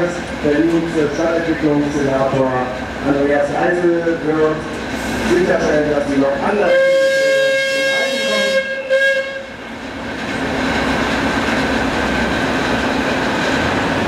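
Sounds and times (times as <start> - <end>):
steady steam hiss: 4.4 - 6.2
steam whistle blast: 6.6 - 9.5.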